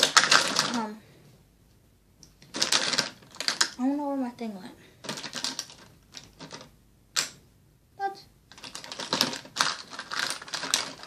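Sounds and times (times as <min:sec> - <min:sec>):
plastic makeup items clattering: 0:00.0 - 0:00.8, 0:02.4 - 0:03.8, 0:05.0 - 0:06.7, 0:08.5 - 0:11.0.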